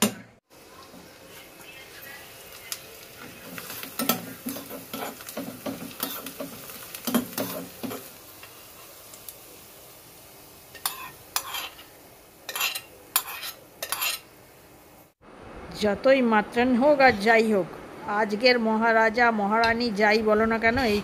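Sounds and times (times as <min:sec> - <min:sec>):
soft sizzling: 0:00.5 - 0:15.2
spoon scraping pan: 0:01.0 - 0:08.1, 0:10.7 - 0:14.3.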